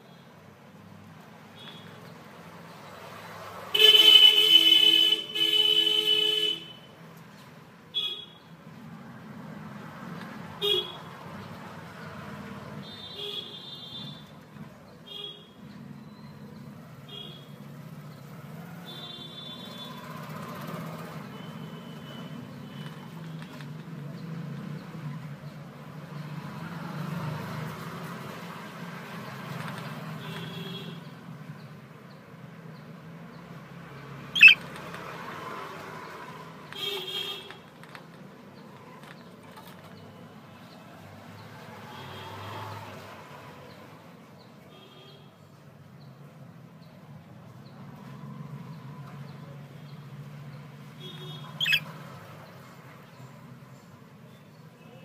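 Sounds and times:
distant traffic rumble: 31.2s - 36.7s, 45.8s - 55.0s
high bird chirps: 34.4s - 34.7s, 51.6s - 51.9s
sharp loud bird call: 34.4s - 34.7s, 51.6s - 51.9s.

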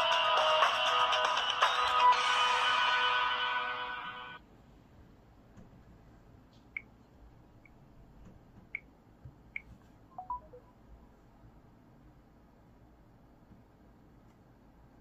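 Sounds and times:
smartphone touchscreen beeps: 9.6s - 10.7s.

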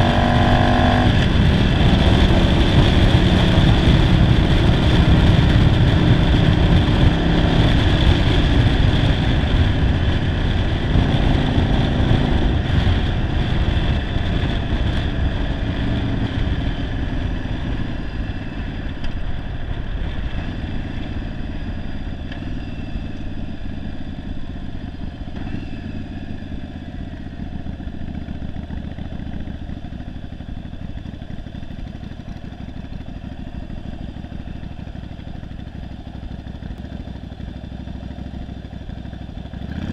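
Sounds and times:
wind rush: 0.0s - 21.4s
motorcycle engine running: 0.0s - 39.9s.

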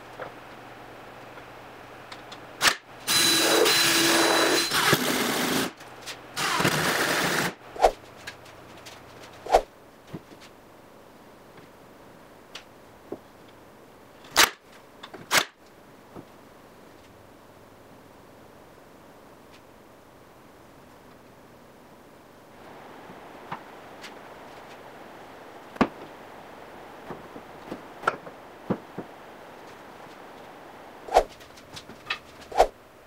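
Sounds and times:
cordless drill driving screws: 3.1s - 5.7s, 6.4s - 7.5s.

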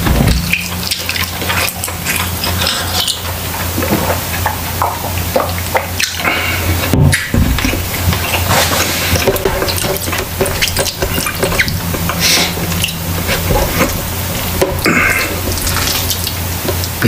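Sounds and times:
wet chewing and mouth smacks: 0.0s - 17.0s.

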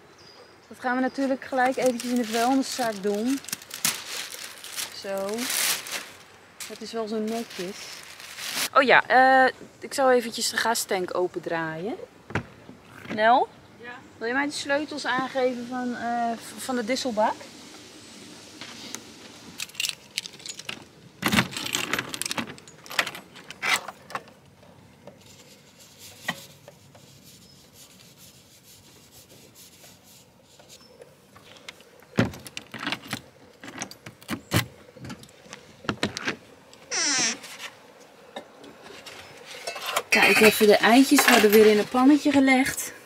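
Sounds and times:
rustle: 0.0s - 43.0s
knocks and clatter of handling: 19.6s - 25.2s.

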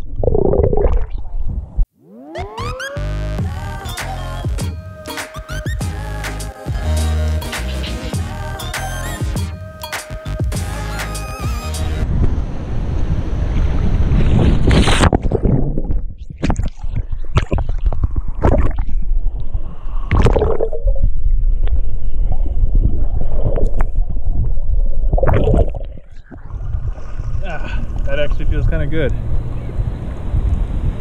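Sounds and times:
bubbling: 0.0s - 1.8s, 14.9s - 28.1s
muffled underwater rumble: 12.2s - 28.6s
water sloshing and splashing: 14.1s - 19.4s, 20.1s - 28.0s.

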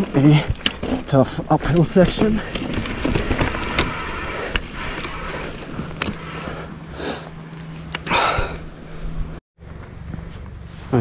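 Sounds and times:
bike clicks and knocks: 0.0s - 6.6s
bike tyres crunching on rocks: 0.0s - 6.7s.

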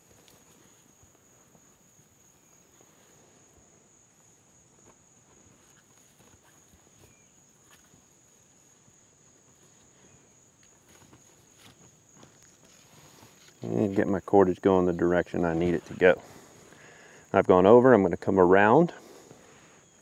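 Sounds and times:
rope rustling against wooden poles: 0.0s - 3.3s, 4.7s - 17.1s
high-pitched insect chorus: 0.0s - 20.0s.

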